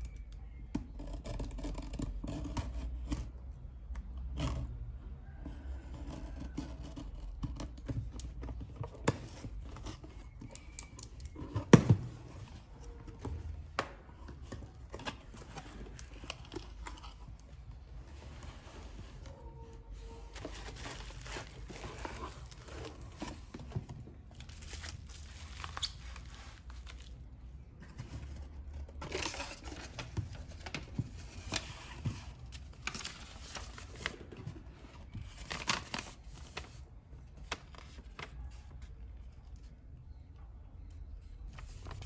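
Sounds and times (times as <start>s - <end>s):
paper rustling: 14.2s - 27.2s, 27.8s - 38.8s
bubble wrap crinkling: 20.2s - 23.5s, 24.3s - 27.3s, 29.0s - 34.4s.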